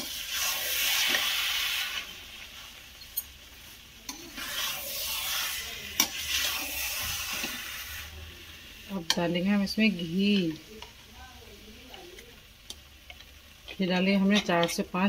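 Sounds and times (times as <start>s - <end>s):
metal spoon scraping a pan: 4.1s - 8.0s, 13.1s - 14.9s.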